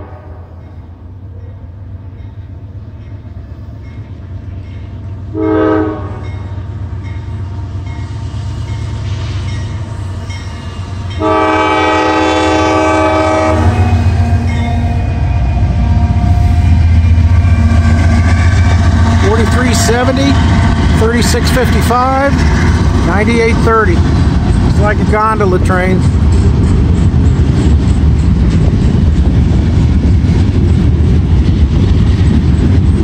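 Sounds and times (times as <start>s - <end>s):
locomotive air horn blasts: 0.0s - 0.6s, 5.3s - 6.4s, 11.2s - 18.4s
locomotive engine rumbling: 0.0s - 33.0s.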